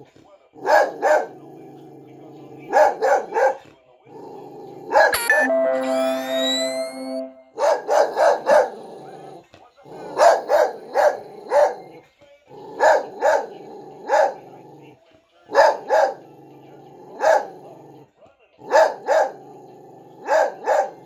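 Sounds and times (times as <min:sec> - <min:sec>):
dog barking: 0:00.6 - 0:01.4, 0:02.7 - 0:03.7, 0:04.9 - 0:05.1, 0:07.6 - 0:08.8, 0:10.0 - 0:12.0, 0:12.7 - 0:14.5, 0:15.5 - 0:16.3, 0:17.1 - 0:17.7, 0:18.6 - 0:19.4, 0:20.2 - 0:21.0
held musical notes: 0:05.2 - 0:07.7.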